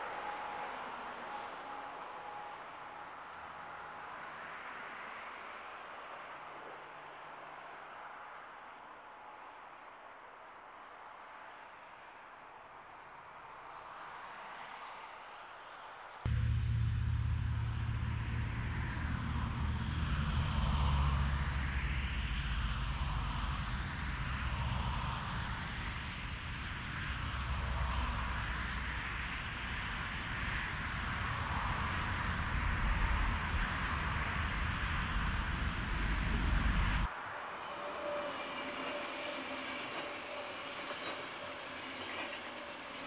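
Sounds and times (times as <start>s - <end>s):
train low rumble: 0.0s - 11.9s, 15.7s - 43.0s
rail hiss: 0.0s - 16.2s, 36.0s - 43.0s
wavering locomotive whine: 0.0s - 43.0s.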